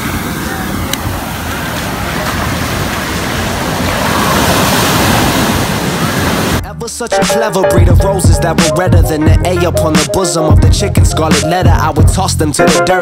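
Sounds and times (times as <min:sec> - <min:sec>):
surf washing in shallows: 0:00.0 - 0:06.6.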